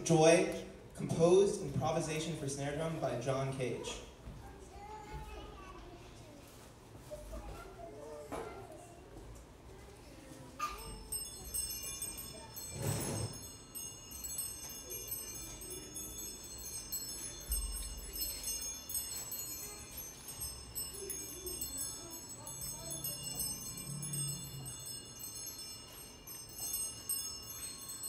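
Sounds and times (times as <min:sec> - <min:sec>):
small metal chimes jingling: 0:10.2 - 0:28.0.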